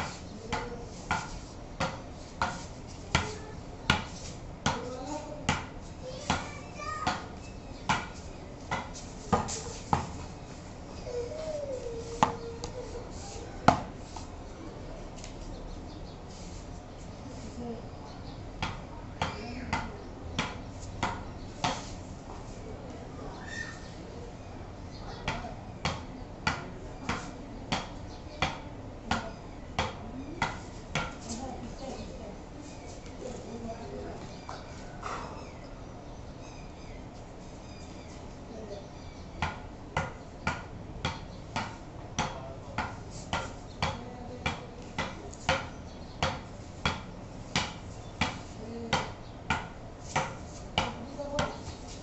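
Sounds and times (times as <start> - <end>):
ball knocking on bat and floor: 7.9 - 8.1, 39.4 - 51.7.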